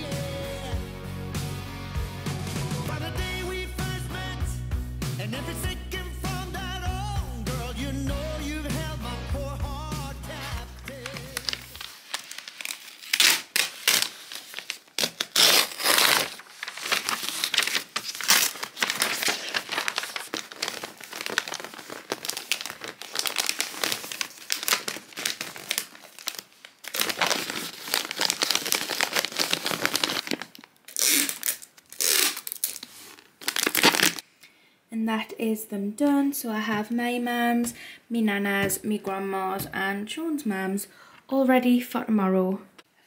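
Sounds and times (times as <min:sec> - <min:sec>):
wrapping paper crinkling: 0:10.3 - 0:34.2.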